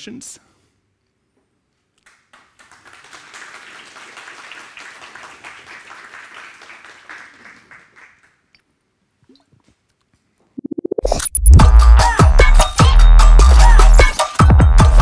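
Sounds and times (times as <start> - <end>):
audience applauding: 2.0 - 8.5.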